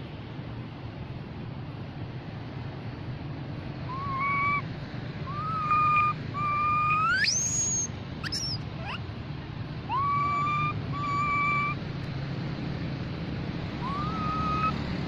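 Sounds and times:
monkey coo calls: 3.9s - 4.6s, 5.3s - 9.0s, 9.9s - 11.8s, 13.8s - 14.8s
monkey high squeal: 3.9s - 4.6s, 5.3s - 9.0s, 9.9s - 11.8s, 13.8s - 14.8s
monkey short squeaks: 5.3s - 9.0s, 9.9s - 11.8s, 13.8s - 14.7s.

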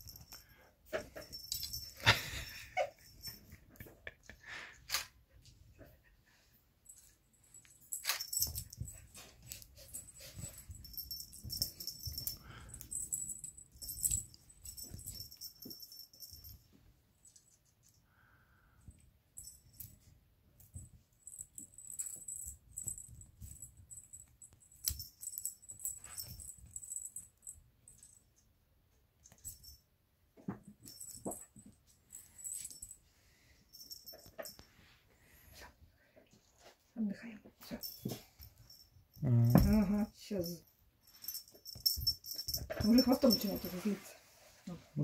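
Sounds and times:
cat toys jingling: 0.0s - 4.0s, 6.9s - 17.6s, 19.4s - 28.3s, 30.7s - 35.7s, 37.6s - 44.5s.

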